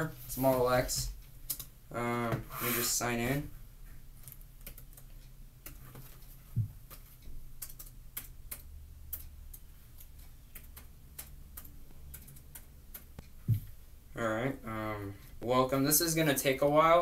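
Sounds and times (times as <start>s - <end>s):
laptop keyboard keystrokes: 4.2s - 13.7s
soft thump: 13.5s - 13.7s.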